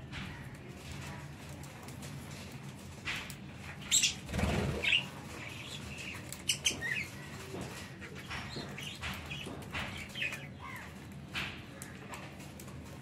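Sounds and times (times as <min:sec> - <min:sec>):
budgerigars chirping: 0:03.9 - 0:07.2.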